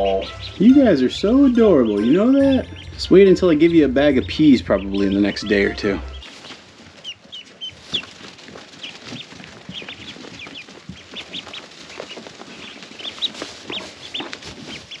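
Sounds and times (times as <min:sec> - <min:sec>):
ducklings peeping: 0:00.0 - 0:15.0.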